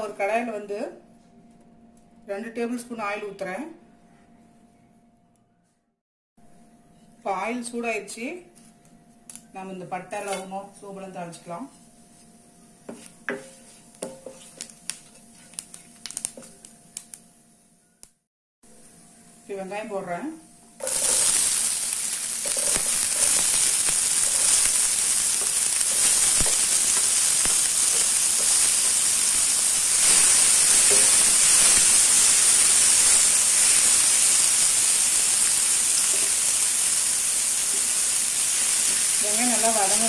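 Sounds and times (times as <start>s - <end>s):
onions sizzling in hot oil: 20.8s - 40.0s.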